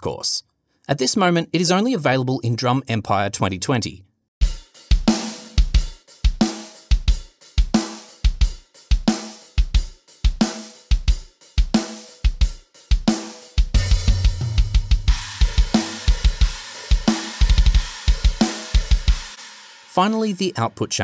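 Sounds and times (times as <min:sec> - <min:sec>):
snare drum: 0:04.9 - 0:20.1
cymbals: 0:15.1 - 0:20.6.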